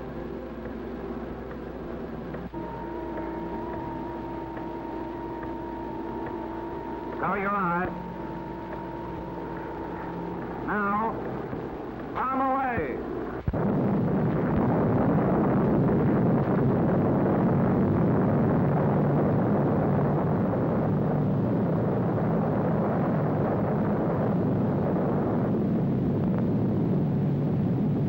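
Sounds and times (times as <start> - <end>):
explosion rumbling roar: 6.2 - 28.0.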